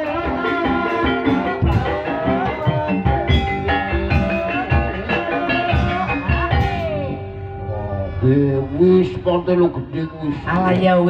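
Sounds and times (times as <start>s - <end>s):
drum strokes: 0.0s - 7.1s
ringing metal percussion: 0.0s - 9.6s
sliding pitched notes: 0.0s - 10.0s.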